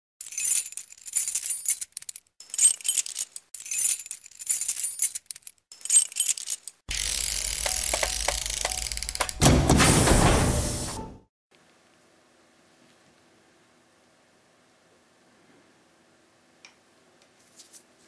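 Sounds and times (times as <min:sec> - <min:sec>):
metallic jingling: 0:00.2 - 0:06.8.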